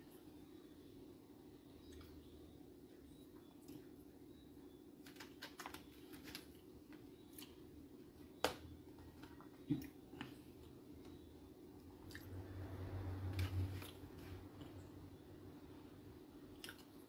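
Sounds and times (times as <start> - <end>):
chewing clicks: 16.6 - 16.9.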